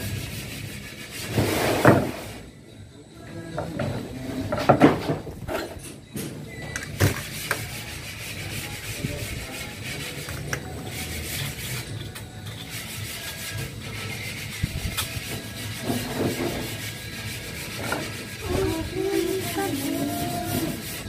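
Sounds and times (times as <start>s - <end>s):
metal rail scraping: 9.6s - 21.0s.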